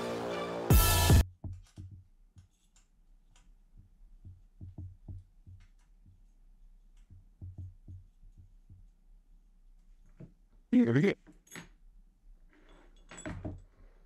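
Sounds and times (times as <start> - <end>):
soft thuds and light clicks: 3.7 - 9.0.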